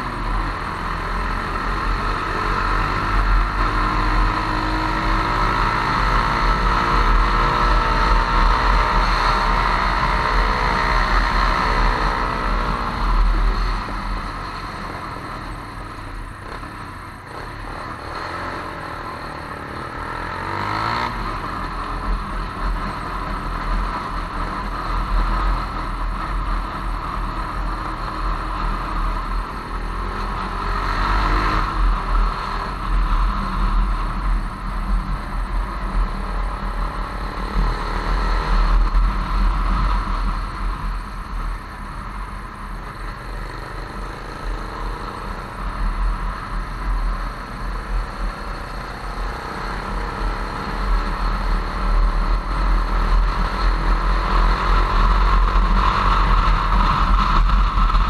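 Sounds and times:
motorcycle engine running: 0.0s - 58.0s
wind rumble on microphone: 51.1s - 58.0s.

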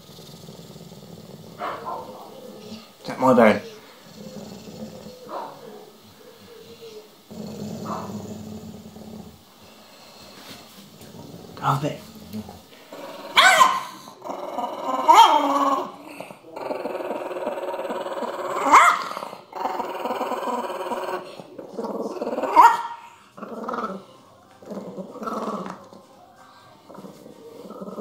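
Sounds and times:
dog growling: 0.0s - 26.2s, 26.8s - 28.0s
dog barking: 1.6s - 2.4s, 5.3s - 6.6s, 13.3s - 14.0s, 18.7s - 19.1s, 22.5s - 23.0s.

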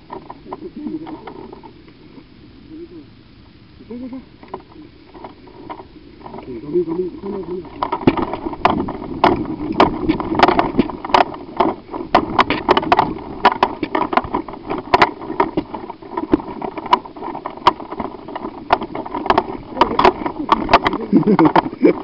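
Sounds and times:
steady rustling noise: 0.0s - 22.0s
footsteps and clattering gear: 4.5s - 22.0s.

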